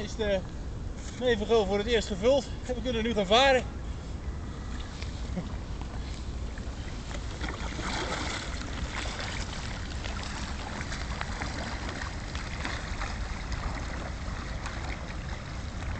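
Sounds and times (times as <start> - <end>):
paddle strokes splashing: 4.6 - 15.9
water lapping and dripping: 4.6 - 15.9.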